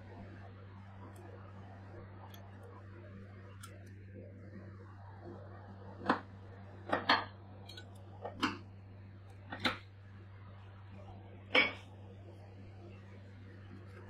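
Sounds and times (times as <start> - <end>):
metal spatulas tapping steel plate: 7.7 - 7.9.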